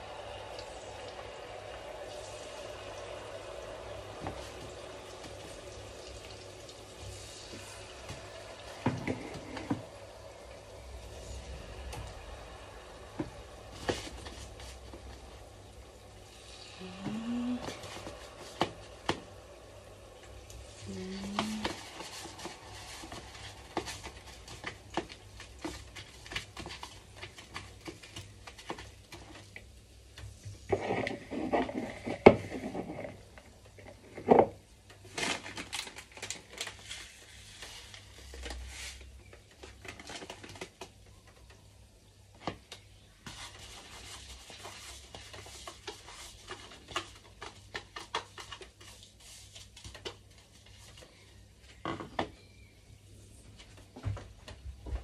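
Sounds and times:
hot oil crackling: 0:00.0 - 0:38.9.

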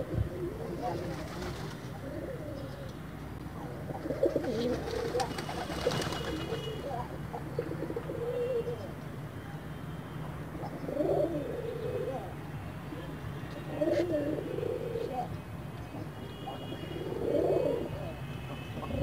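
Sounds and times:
pigeons cooing: 0:00.0 - 0:09.0, 0:10.6 - 0:12.4, 0:13.0 - 0:15.4, 0:16.0 - 0:19.0
pigeon wing claps: 0:04.5 - 0:06.8.

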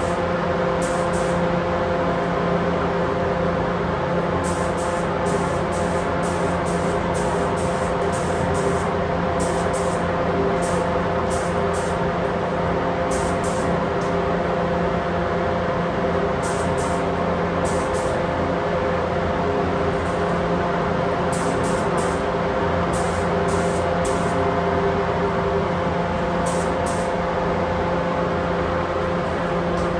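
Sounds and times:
ventilation air rush and hum: 0:00.0 - 0:29.9
spray gun hissing: 0:00.8 - 0:01.4, 0:04.4 - 0:10.0, 0:10.6 - 0:12.0, 0:13.1 - 0:13.7, 0:16.4 - 0:17.0, 0:17.7 - 0:18.2, 0:21.3 - 0:22.2, 0:23.0 - 0:24.4, 0:26.5 - 0:27.1.

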